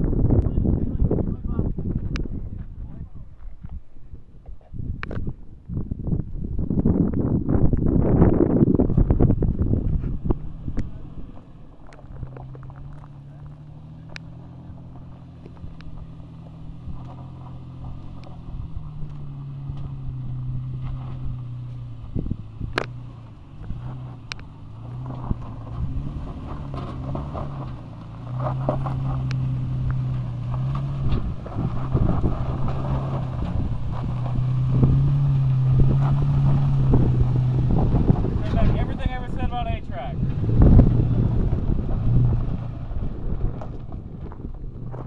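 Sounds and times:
truck engine at low revs: 0.0 - 45.0
stones crunching under tyres: 8.7 - 38.8, 40.2 - 45.0.

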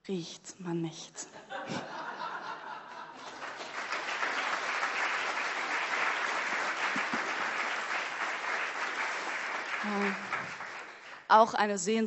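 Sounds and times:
audience applauding: 3.1 - 11.3.

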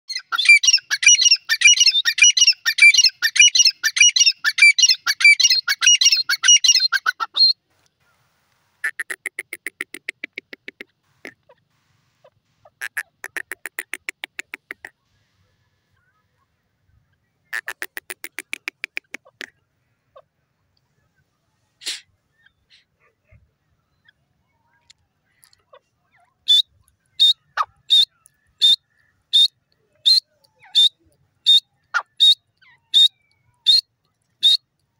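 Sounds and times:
francolin calling shrill phrases: 0.1 - 7.6, 8.8 - 10.0, 12.6 - 14.9, 26.4 - 34.7.

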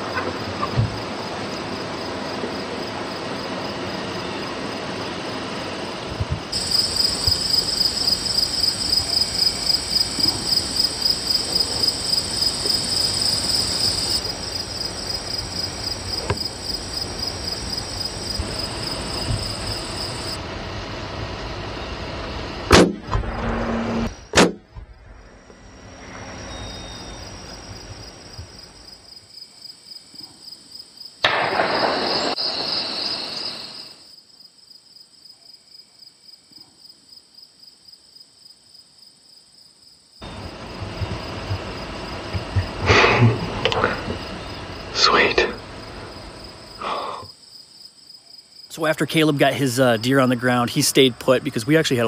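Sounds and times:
insects chirping trill: 0.0 - 22.7, 23.5 - 52.0
air rifle shot crack: 31.2 - 32.4.

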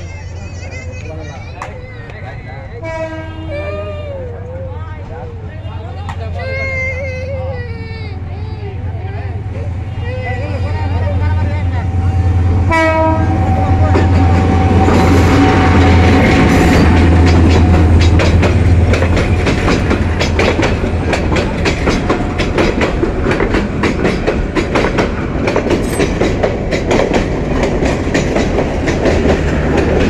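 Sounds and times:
diesel locomotive engine drone: 0.0 - 30.0
train wheels clacking on rails: 12.2 - 30.0.

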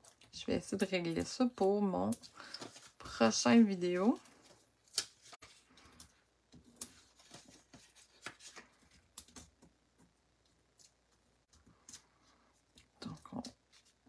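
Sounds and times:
paper and plastic clicks and rustles: 0.0 - 10.1.

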